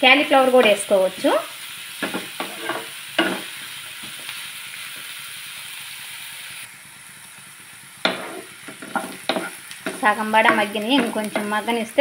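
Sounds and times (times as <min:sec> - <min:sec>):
vegetables sizzling in oil: 0:00.0 - 0:12.0
spatula scraping through food: 0:02.4 - 0:02.9, 0:08.1 - 0:11.6.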